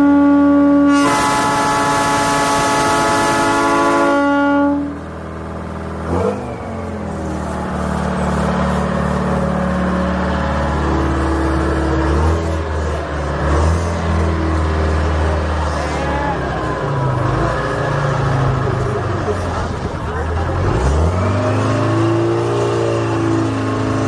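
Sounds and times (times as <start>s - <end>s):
multi-tone horn blaring: 0.0s - 5.3s
trike engine running: 1.1s - 24.0s.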